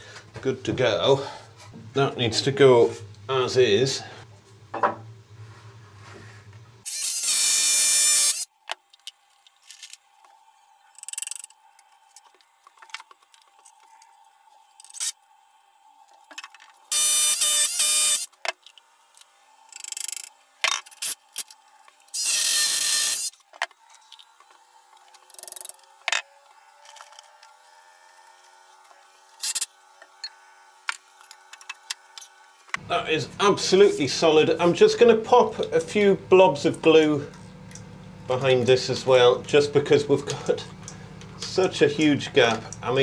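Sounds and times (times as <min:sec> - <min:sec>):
power drill: 0:06.8 - 0:08.5, 0:16.9 - 0:18.3, 0:22.1 - 0:23.4.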